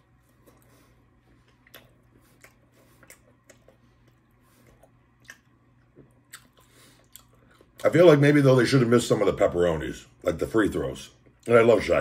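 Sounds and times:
faint chewing: 0:00.0 - 0:08.0
low room hum: 0:00.0 - 0:12.0
mouth clicks and smacks: 0:01.4 - 0:07.9.

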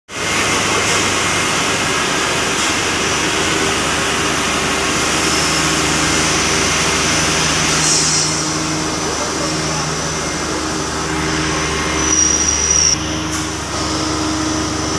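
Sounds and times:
steady machine hum: 0:00.1 - 0:14.9
loud even hiss: 0:00.2 - 0:14.2.

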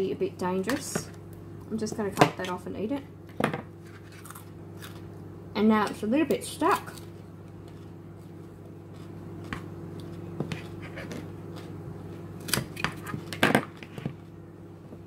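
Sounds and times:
steady low hum: 0:00.0 - 0:15.0
knife crunching carrot: 0:03.9 - 0:05.0.

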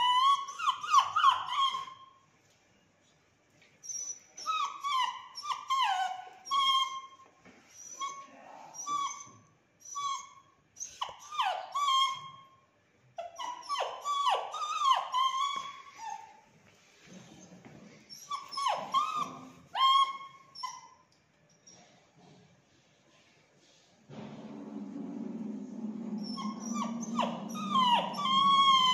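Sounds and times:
puppy whining: 0:00.0 - 0:02.2, 0:03.8 - 0:12.6, 0:13.2 - 0:16.5, 0:17.1 - 0:22.1, 0:26.0 - 0:28.9.

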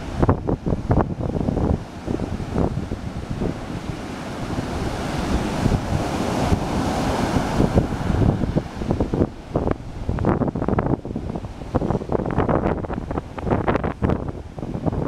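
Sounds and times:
ocean surf breaking: 0:00.0 - 0:15.0
wind buffeting microphone: 0:00.0 - 0:15.0.

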